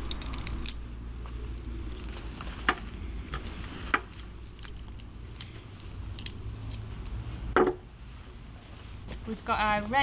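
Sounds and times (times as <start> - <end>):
metal buckles clicking: 0.0 - 0.9, 3.3 - 6.9.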